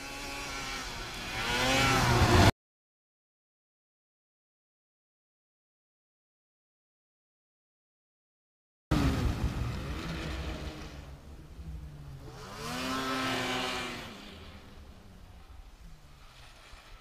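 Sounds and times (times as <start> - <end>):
snowmobile engine revving: 0.0 - 2.5, 8.9 - 17.0.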